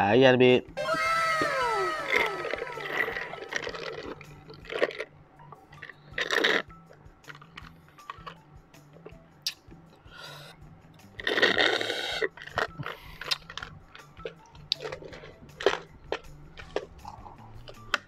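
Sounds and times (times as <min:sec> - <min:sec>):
slurp through a straw: 0:05.8 - 0:06.7, 0:11.2 - 0:13.6.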